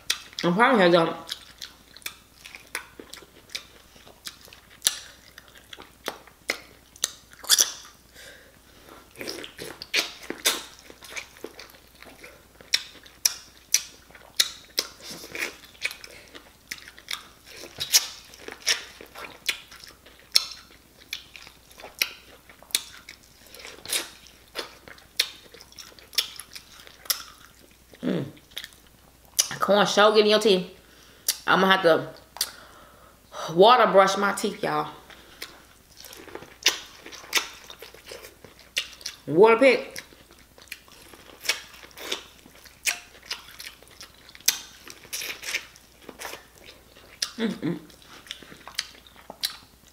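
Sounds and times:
crunchy chewing: 1.2s - 29.6s, 35.0s - 39.2s, 40.0s - 49.9s
wet mouth clicks: 32.4s - 32.6s.

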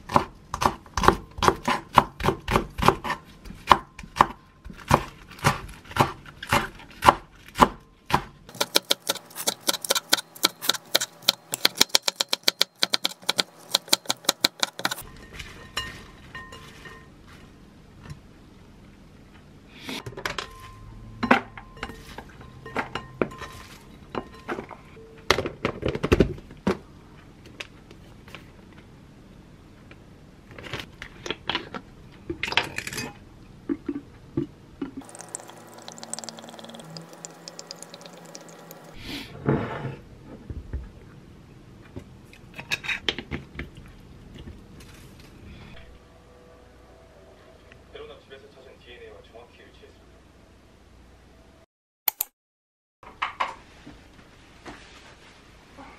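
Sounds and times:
knife chopping on wooden board: 0.1s - 15.0s.

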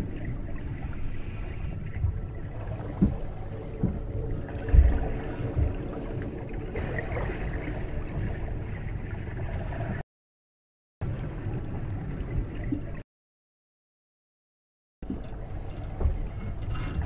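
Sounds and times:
steady low hum: 0.0s - 10.0s, 15.0s - 17.0s
water gurgling and bubbling: 0.0s - 10.0s, 11.0s - 13.0s
low thump: 3.0s - 5.8s.

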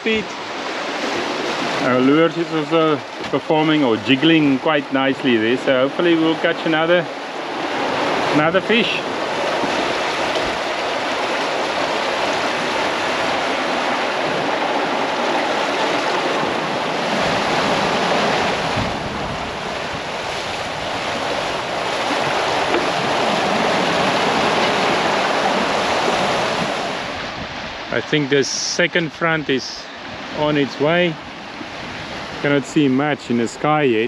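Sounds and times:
water rushing in boat wake: 0.0s - 34.0s
wind rumble on microphone: 9.0s - 28.0s.

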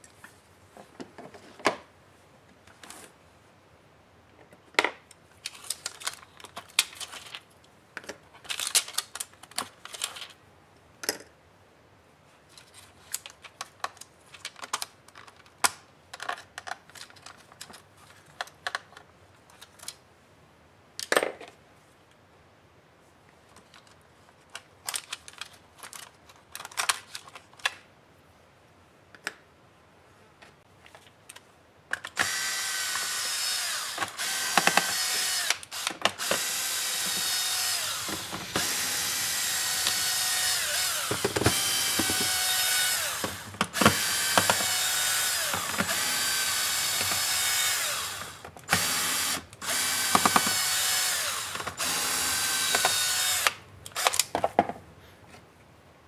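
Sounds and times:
cordless drill whining: 32.2s - 54.2s.

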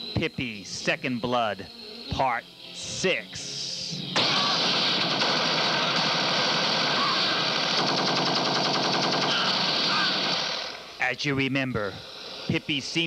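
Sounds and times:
automatic gunfire: 4.2s - 10.8s.

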